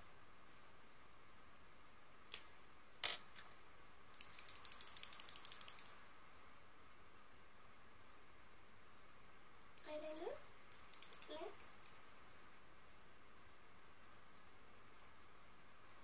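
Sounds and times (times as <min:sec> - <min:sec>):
small rattling clicks: 0:04.1 - 0:06.0, 0:10.7 - 0:12.2.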